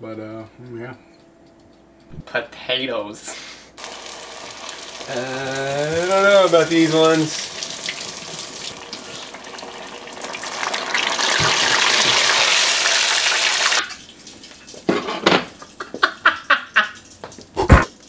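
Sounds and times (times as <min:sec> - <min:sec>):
food sizzling in hot oil: 0:03.8 - 0:14.0.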